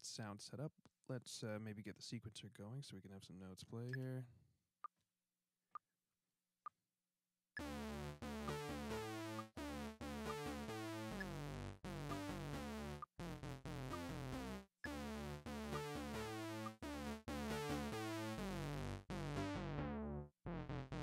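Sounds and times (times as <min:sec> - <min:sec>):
robotic sawtooth synthesizer notes: 0:07.6 - 0:21.0.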